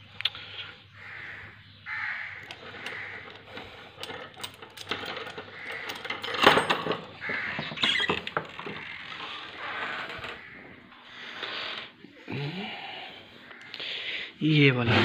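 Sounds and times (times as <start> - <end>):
crows cawing: 0.9 - 4.0, 5.3 - 6.3, 7.0 - 11.4, 13.3 - 14.4
keys padlock and chain rattling: 2.4 - 7.2
wooden door opening: 4.0 - 10.8.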